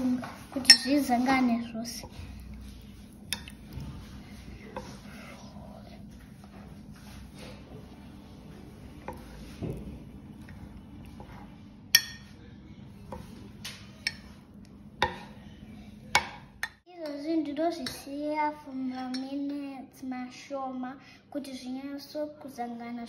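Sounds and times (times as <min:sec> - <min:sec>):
spoon clinking against glass: 0:00.7 - 0:00.9, 0:11.9 - 0:12.3.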